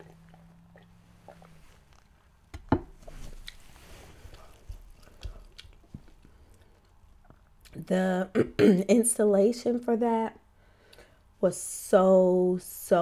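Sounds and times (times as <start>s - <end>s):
mouth eating sounds: 0.0s - 2.1s, 4.3s - 6.3s.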